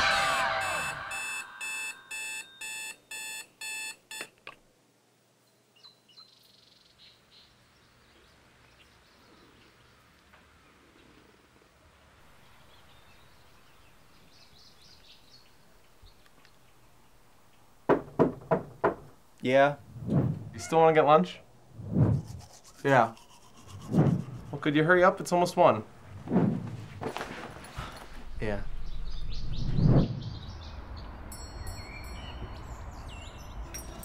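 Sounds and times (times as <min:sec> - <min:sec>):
digital alarm clock beeping: 0:00.0 - 0:04.3
faint rustles: 0:25.8 - 0:28.6.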